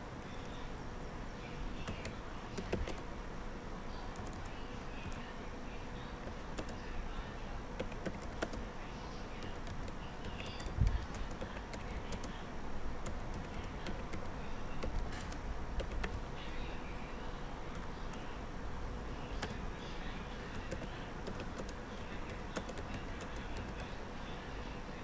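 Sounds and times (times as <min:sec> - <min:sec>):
steady low hum: 0:00.0 - 0:25.0
keyboard typing: 0:01.8 - 0:03.1, 0:04.1 - 0:05.3, 0:06.2 - 0:06.8, 0:07.8 - 0:08.7, 0:09.4 - 0:12.4, 0:13.0 - 0:16.3, 0:17.7 - 0:18.4, 0:19.3 - 0:19.7, 0:20.4 - 0:24.0.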